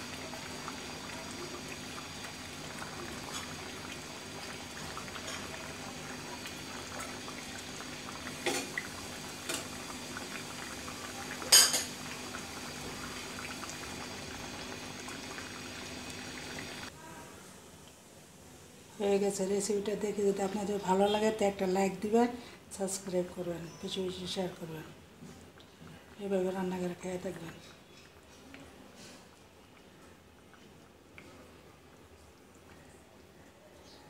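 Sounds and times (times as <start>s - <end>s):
curry bubbling in a pot: 0.0s - 17.0s, 19.1s - 34.0s.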